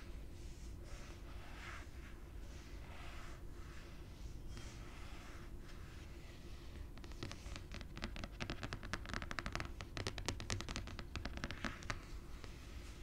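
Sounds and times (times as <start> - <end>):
fingernails tapping and scratching: 7.0 - 12.1.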